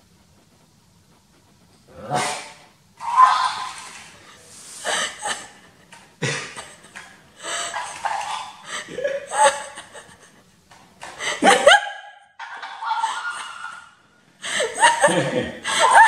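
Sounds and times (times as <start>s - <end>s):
people laughing: 4.8s - 16.0s.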